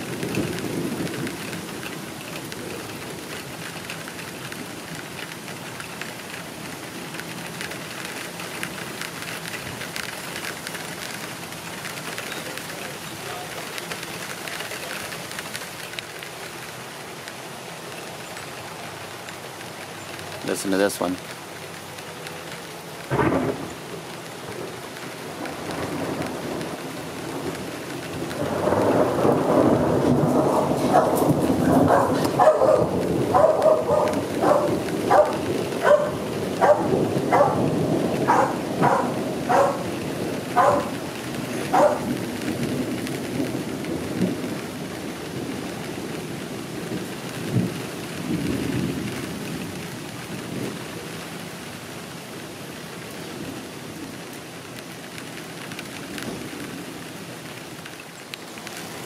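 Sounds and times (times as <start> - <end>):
steady rain: 0.0 - 59.0
thunder rolling: 23.1 - 49.8
dog barking: 30.8 - 39.9, 40.5 - 41.0, 41.7 - 42.2.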